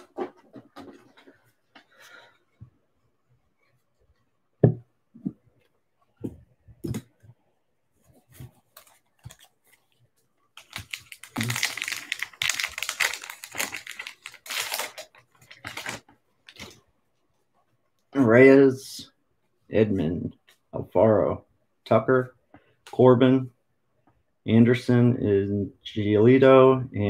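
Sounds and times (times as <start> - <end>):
foil wrapper tearing and crinkling: 10.6 - 16.7.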